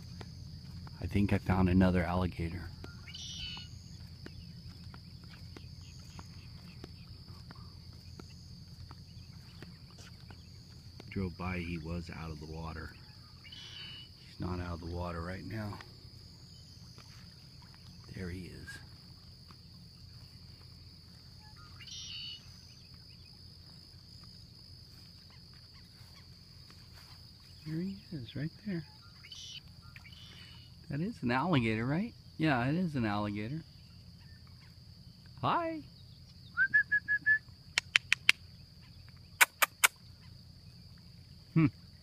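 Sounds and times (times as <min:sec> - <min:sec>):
low steady rumble: 0:00.0 - 0:37.8
insects chirring: 0:00.0 - 0:42.0
faint ticks: 0:37.7 - 0:38.4.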